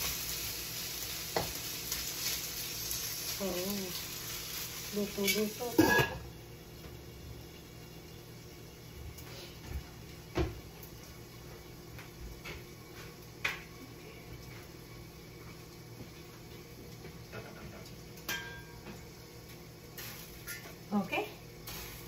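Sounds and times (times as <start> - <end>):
metal pot lid clinking: 5.3 - 6.3.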